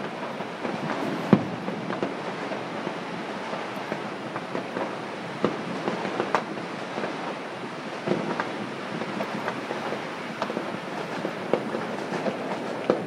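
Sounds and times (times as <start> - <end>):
distant fireworks bangs: 0.0 - 13.0.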